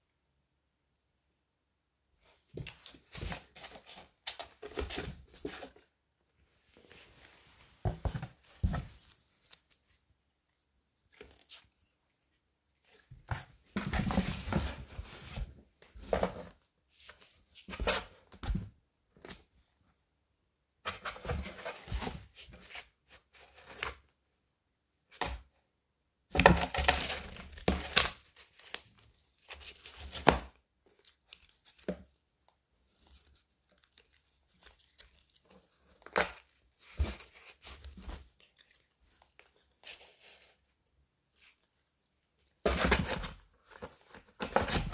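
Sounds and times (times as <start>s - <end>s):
cat ripping cardboard: 42.6s - 44.9s.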